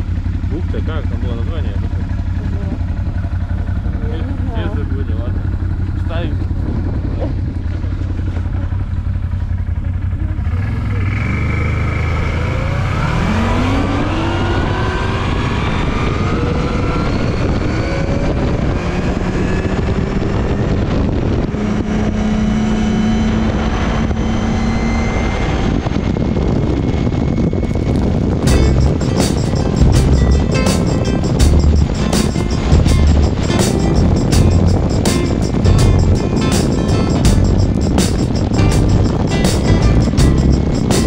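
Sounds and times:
atv engine accelerating: 0.0 - 41.0.

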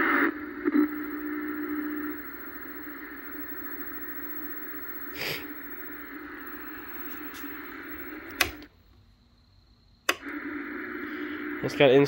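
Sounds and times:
television speaker hiss: 0.0 - 8.7, 10.1 - 12.0
power switch click: 8.3 - 8.7.

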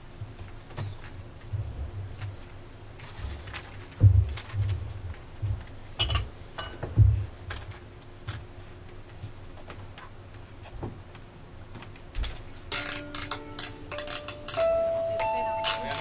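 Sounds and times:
low thumps and small clicks: 4.0 - 5.7.

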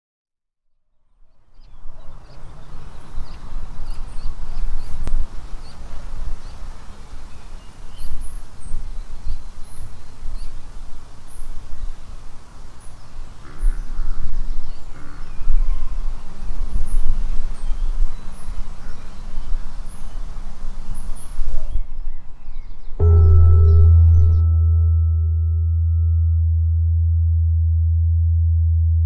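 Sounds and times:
small birds chirping: 1.3 - 24.4
wind rumbling on microphone: 1.6 - 23.1
low harsh bird call: 23.0 - 24.6.

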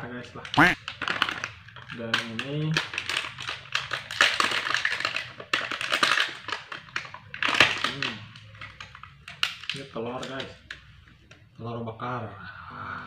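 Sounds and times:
plastic bag crinkling: 0.8 - 8.9.

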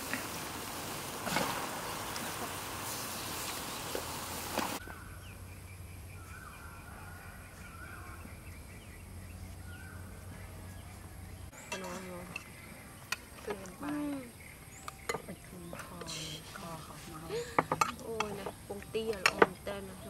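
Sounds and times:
even hiss: 0.0 - 4.8
birds chirping: 0.0 - 20.0.

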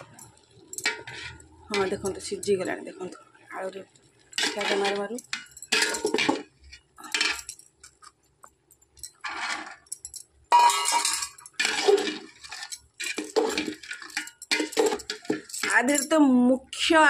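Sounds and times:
metal ladle scraping a pot: 0.0 - 2.8, 4.3 - 7.6, 9.0 - 16.1.

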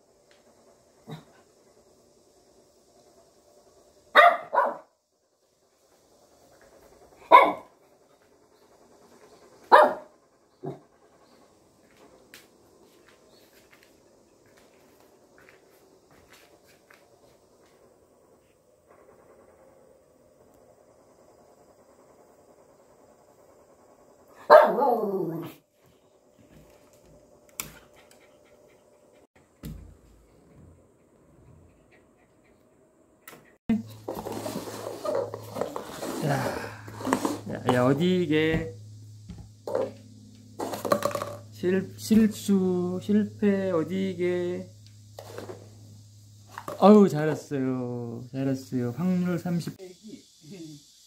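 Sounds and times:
small dog barking: 4.1 - 4.9, 7.2 - 7.7, 9.7 - 10.8, 24.4 - 25.6.

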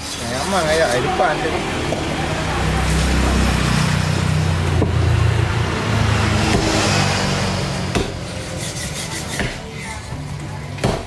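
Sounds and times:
vehicle engine running: 0.7 - 8.8.

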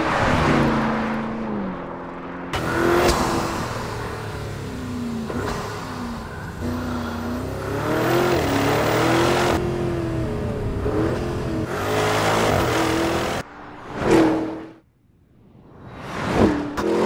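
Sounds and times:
car engine accelerating hard: 0.0 - 13.4.

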